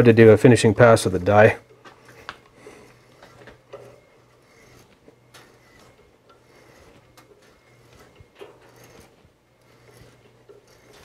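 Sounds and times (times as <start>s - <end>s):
metal scraping: 0.8s - 11.0s.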